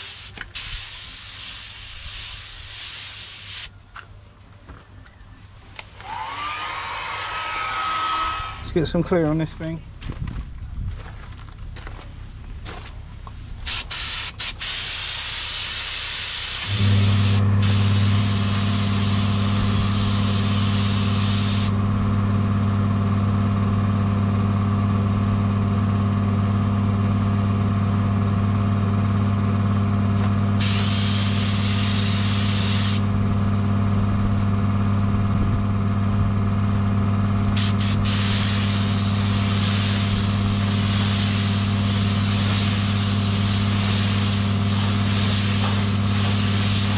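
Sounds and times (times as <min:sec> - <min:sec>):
air compressor humming: 0:00.0 - 0:03.7, 0:06.0 - 0:09.0, 0:13.6 - 0:46.9
air spray gun hissing: 0:00.0 - 0:03.7, 0:13.7 - 0:21.8, 0:30.6 - 0:33.1, 0:37.6 - 0:46.9.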